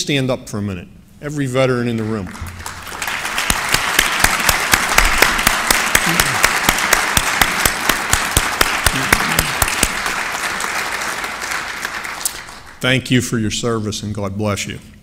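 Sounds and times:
audience applauding: 0:02.3 - 0:12.8
sharp individual hand claps: 0:02.3 - 0:12.8.

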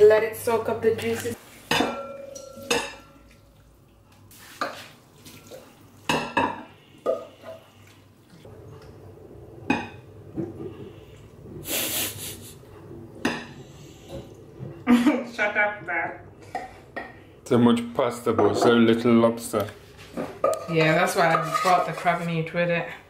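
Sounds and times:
utensils clinking on dishes: 0:01.0 - 0:03.6
spoon scraping a bowl: 0:20.5 - 0:22.4.

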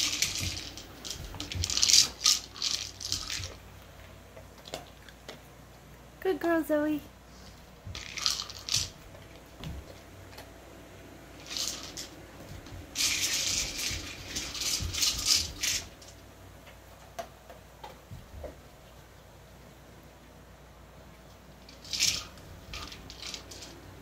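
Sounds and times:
dry food rattling in plastic ball: 0:00.0 - 0:03.7, 0:07.9 - 0:09.1, 0:11.4 - 0:16.2, 0:21.7 - 0:23.9.

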